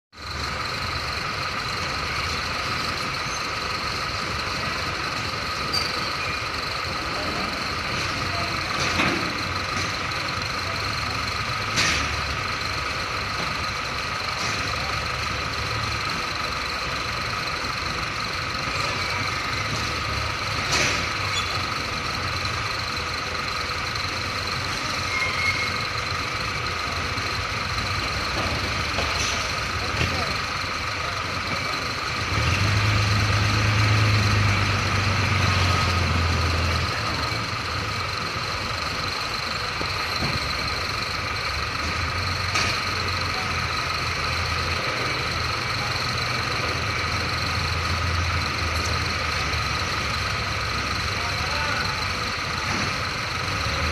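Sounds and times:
diesel truck engine running: 0:00.1 - 0:53.9.

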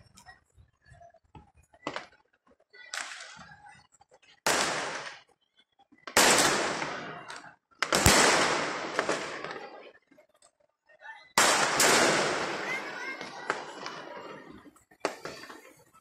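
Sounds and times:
fireworks bangs: 0:01.8 - 0:02.2, 0:02.8 - 0:03.7, 0:04.4 - 0:05.4, 0:06.0 - 0:10.2, 0:11.4 - 0:16.0.

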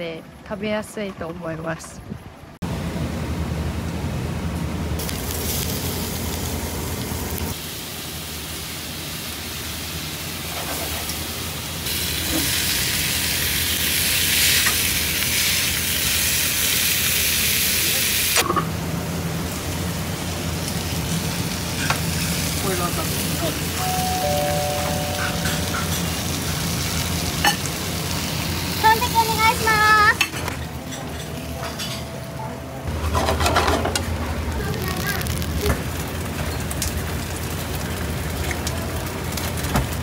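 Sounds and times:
food sizzling in hot oil: 0:05.0 - 0:18.4, 0:19.3 - 0:30.2.

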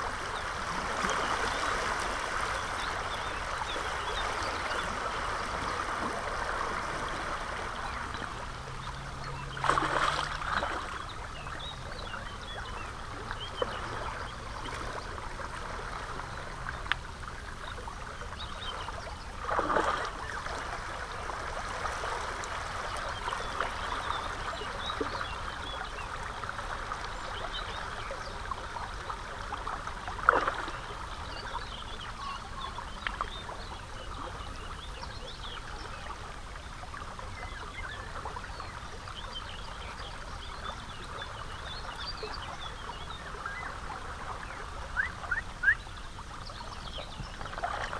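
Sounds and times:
river water rushing over stones: 0:00.0 - 0:18.7, 0:19.3 - 0:34.4, 0:35.6 - 0:46.5
short splashes: 0:09.5 - 0:11.0, 0:19.4 - 0:20.6.

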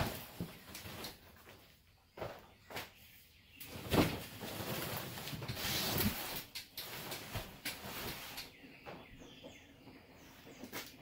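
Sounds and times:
birds chirping: 0:00.0 - 0:11.0
tent scraping on concrete: 0:03.8 - 0:08.4.

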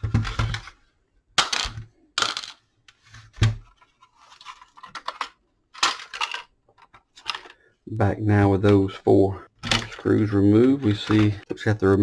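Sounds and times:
plastic rattling: 0:03.6 - 0:07.6.

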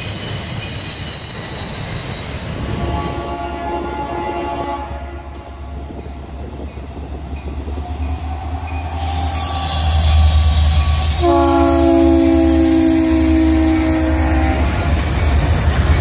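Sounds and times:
train wheels squealing: 0:00.0 - 0:03.4, 0:07.4 - 0:16.0
locomotive horn: 0:02.8 - 0:05.9, 0:09.5 - 0:15.0.

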